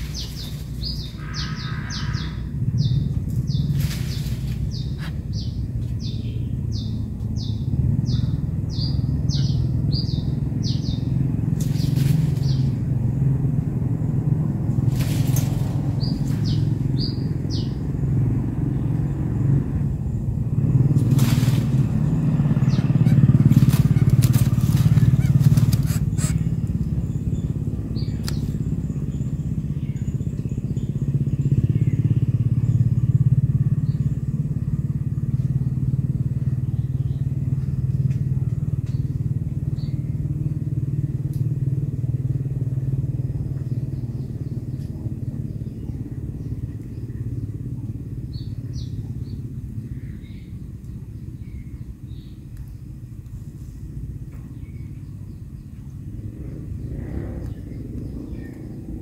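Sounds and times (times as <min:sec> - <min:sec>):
vehicle engine droning: 0:00.0 - 0:59.0.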